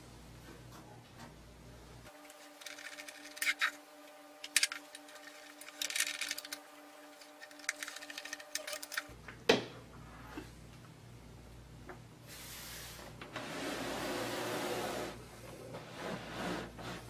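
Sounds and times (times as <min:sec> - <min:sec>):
faint steady hum: 0:00.0 - 0:17.0
screwdriver clicking and scraping metal: 0:02.2 - 0:03.8, 0:04.4 - 0:09.1.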